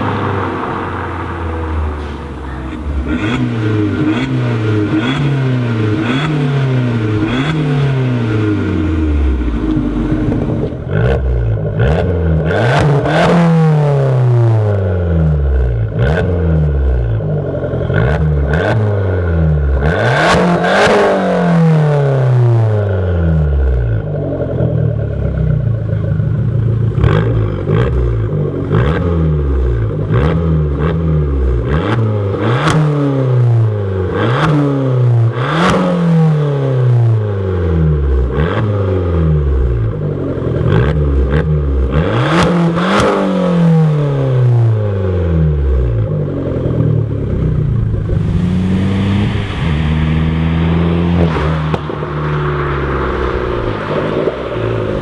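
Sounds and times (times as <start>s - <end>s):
car engine revving: 0.0s - 55.0s
exhaust pops and crackles: 51.0s - 52.4s.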